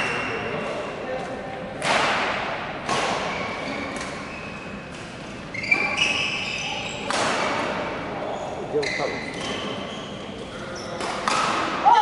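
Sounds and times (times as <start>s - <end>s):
racket hitting shuttlecock: 1.8s - 4.2s, 7.0s - 7.8s, 11.0s - 12.0s
shoe squeaks on court: 3.2s - 7.6s, 8.3s - 11.3s.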